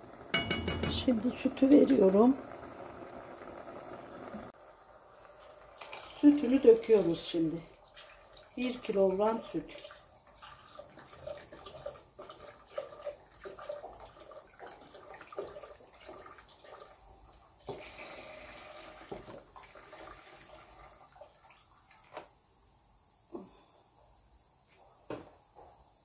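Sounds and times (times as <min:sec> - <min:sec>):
milk pouring into a pot: 0:05.0 - 0:22.3.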